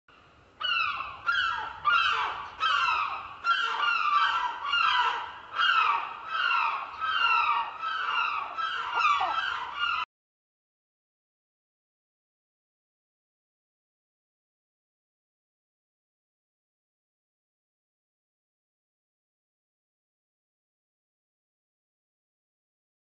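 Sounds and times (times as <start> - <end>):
short falling bird calls: 0.6 - 10.1.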